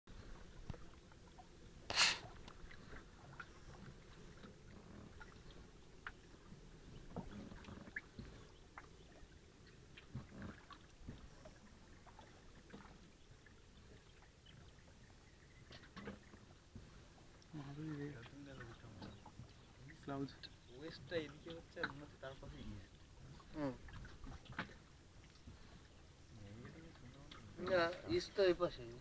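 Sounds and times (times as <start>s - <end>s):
oar splashes: 0.1s - 29.0s.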